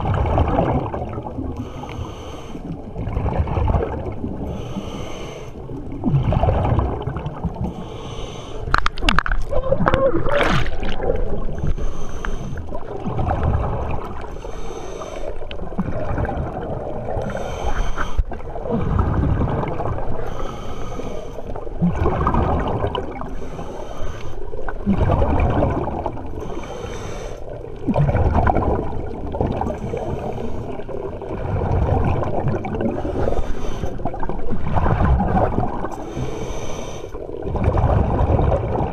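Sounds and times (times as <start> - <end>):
underwater bubbling: 0.0 - 38.9
diver breathing through regulator: 1.6 - 2.8, 4.4 - 5.7, 7.6 - 8.9, 11.4 - 12.9, 14.2 - 15.6, 17.2 - 19.5, 20.1 - 21.7, 23.1 - 24.7, 26.3 - 27.6, 29.7 - 31.0, 32.7 - 34.2, 35.8 - 37.4.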